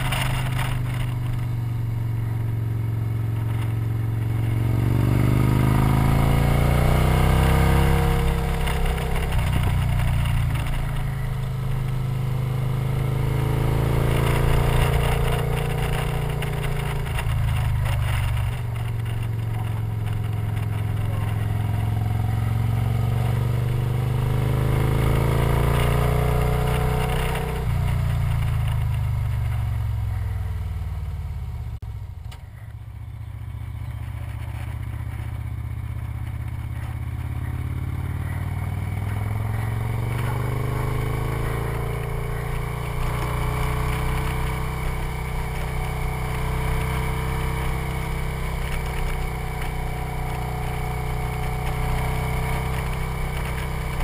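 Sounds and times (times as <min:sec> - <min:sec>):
motorcycle engine revving: 0:00.0 - 0:54.0
wind and road noise: 0:00.0 - 0:54.0.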